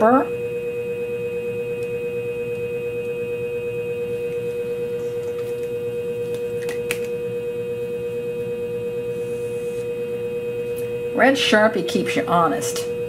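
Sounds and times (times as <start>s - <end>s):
sharpening machine humming: 1.2s - 11.3s.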